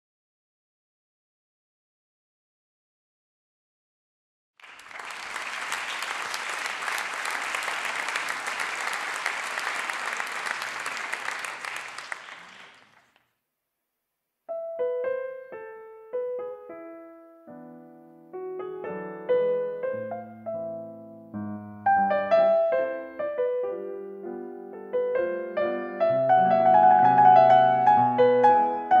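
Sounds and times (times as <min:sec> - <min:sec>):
audience applauding: 0:04.6 - 0:13.3
solo grand piano: 0:14.5 - 0:29.0.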